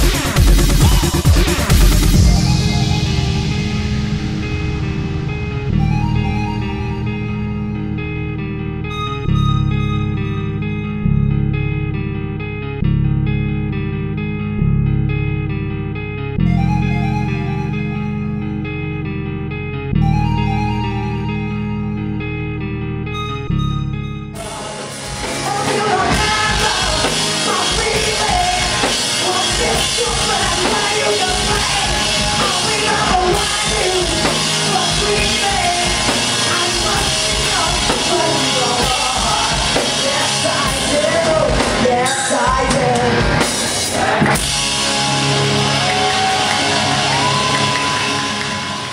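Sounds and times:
drum kit: 0.0 - 7.2, 24.4 - 48.9
electric guitar: 0.0 - 48.9
person singing: 0.2 - 4.5, 24.3 - 44.7.

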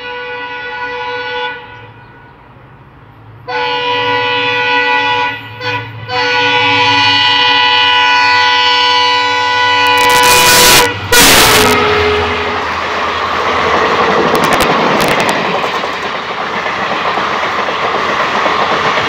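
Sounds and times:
locomotive horn blasts: 0.0 - 2.3, 3.5 - 12.9
rush of passing locomotive: 0.0 - 19.0.

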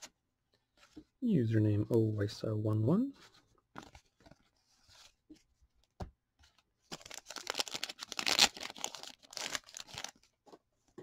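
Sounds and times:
plastic wrapper crinkling: 6.9 - 10.3.

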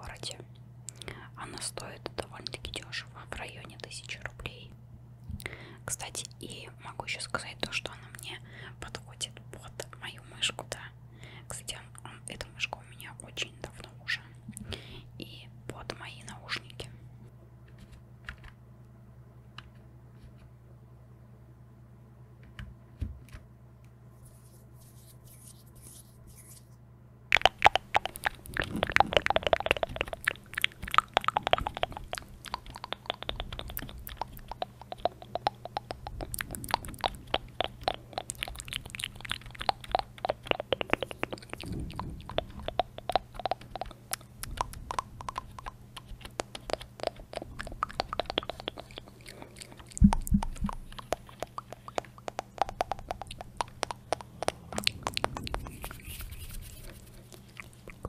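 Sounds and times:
faint low hum: 0.0 - 58.0
wet mouth clicks and smacks: 27.3 - 58.0
keyboard tapping: 50.0 - 56.1.

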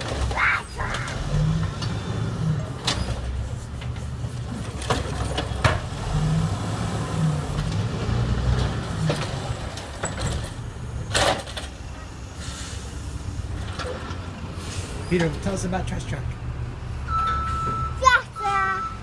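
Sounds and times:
diesel engine droning: 0.7 - 11.2.

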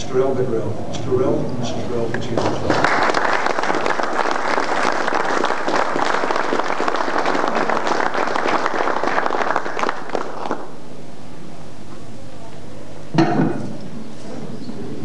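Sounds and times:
audience clapping: 2.1 - 10.8.

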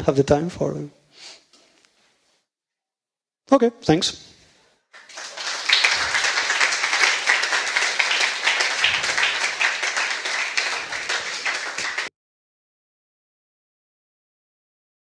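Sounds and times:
audience applauding: 5.0 - 12.1.

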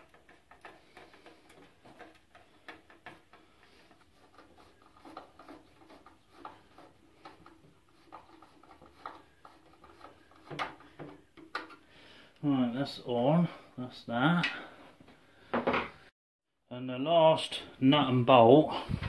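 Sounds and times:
screwdriver ticks and scrapes: 0.0 - 11.8.

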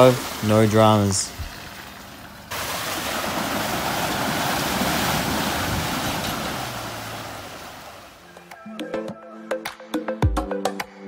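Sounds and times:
tyres churning mud and water: 0.0 - 8.2.

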